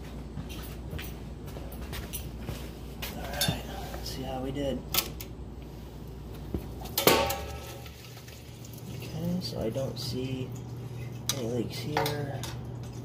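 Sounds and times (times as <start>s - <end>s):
well pump humming: 2.7s - 13.0s.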